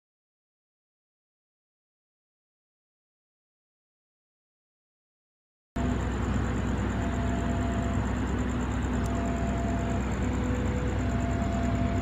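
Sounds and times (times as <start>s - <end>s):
diesel engine idling: 5.8s - 12.0s.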